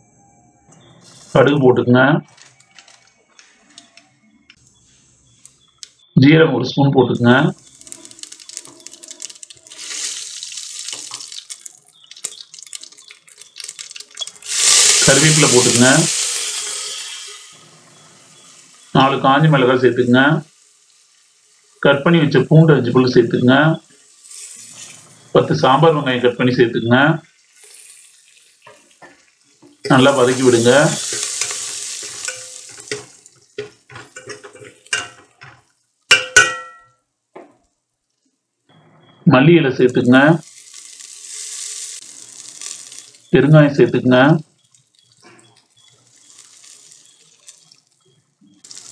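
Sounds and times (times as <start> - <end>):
seeds sizzling in hot oil: 7.4 - 36.5, 40.2 - 48.9
metal ladle scraping pot: 13.0 - 18.5, 29.8 - 36.8
ladle clanking against pot: 31.1 - 36.9.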